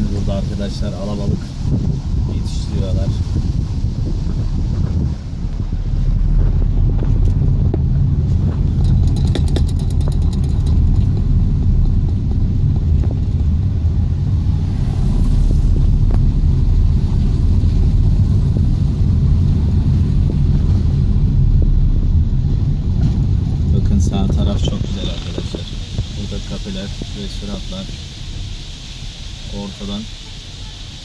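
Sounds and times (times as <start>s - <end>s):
car driving interior rumble: 0.0s - 31.0s
fast faint ticks: 8.8s - 12.4s.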